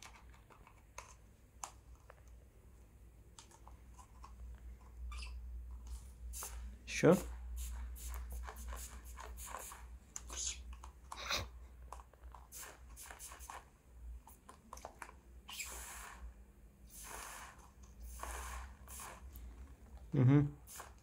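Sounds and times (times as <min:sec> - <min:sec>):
spray bottle hissing squirts: 0:06.3 - 0:06.7, 0:07.3 - 0:10.6, 0:12.5 - 0:13.7, 0:15.5 - 0:16.2, 0:16.9 - 0:19.4, 0:20.6 - 0:21.0.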